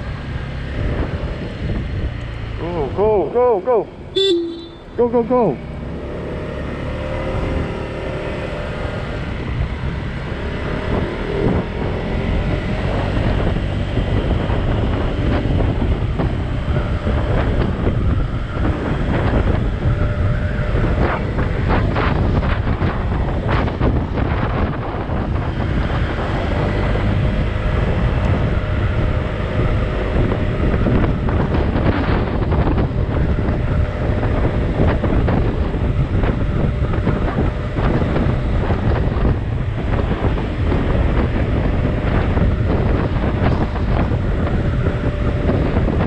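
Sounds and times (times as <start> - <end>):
wind buffeting microphone: 0.0 - 46.0.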